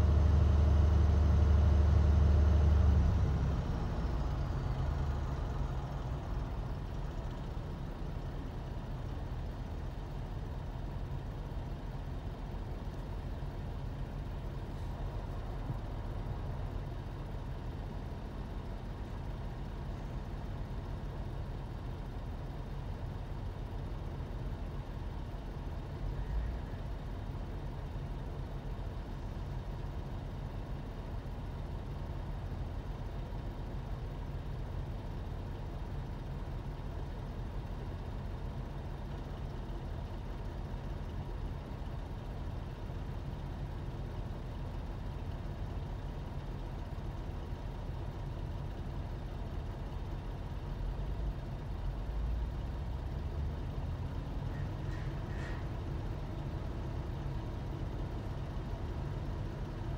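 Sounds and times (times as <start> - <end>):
heavy engine droning: 0.0 - 7.4, 54.0 - 59.9.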